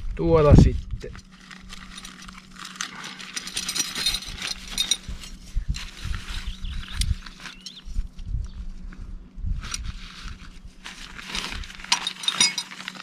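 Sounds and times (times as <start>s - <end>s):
packaging crinkling and rustling: 1.0s - 7.9s, 9.6s - 13.0s.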